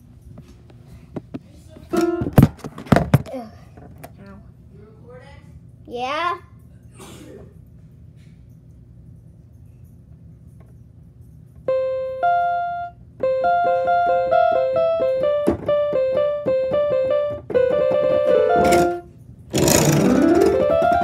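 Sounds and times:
piano melody: 1.9 - 2.5, 11.7 - 21.0
slide along piano keys: 11.7 - 21.0.

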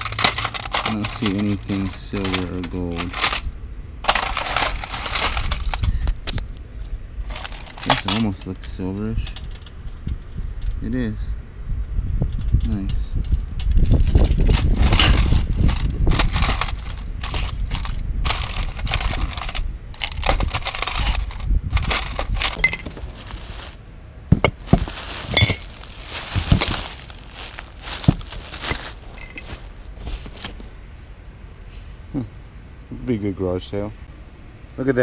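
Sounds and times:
jewelry clinking in metal tin: 15.0 - 23.8, 24.4 - 30.7
cloth rustling: 20.4 - 31.2
drinking glasses clinking: 25.3 - 25.7.

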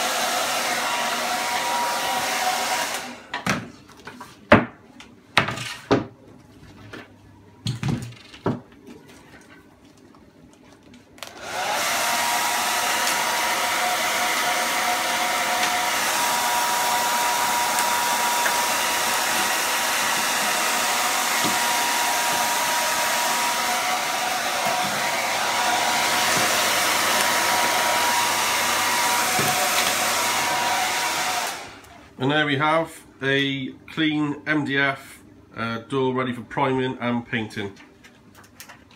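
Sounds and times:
hair dryer whining: 0.0 - 3.5, 11.2 - 32.4.

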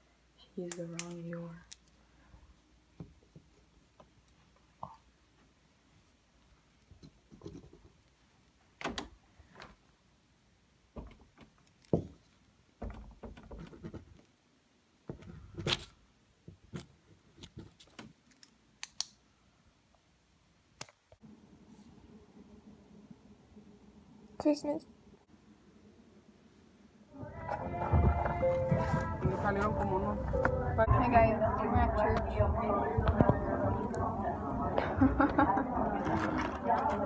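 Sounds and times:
faint steady hum: 18.4 - 37.0.

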